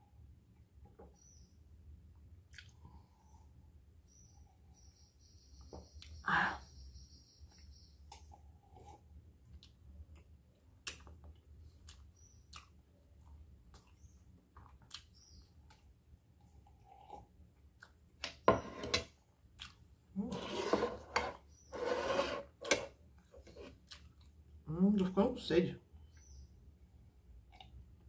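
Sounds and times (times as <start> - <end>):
chewing smacks and clicks: 2.5 - 2.8, 9.5 - 15.9, 19.6 - 19.8, 23.8 - 24.4
slurping coffee from a mug: 20.3 - 23.8.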